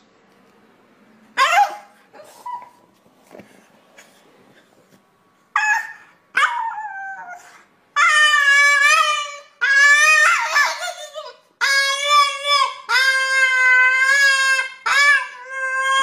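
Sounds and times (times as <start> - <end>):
dog howling: 5.6 - 16.0.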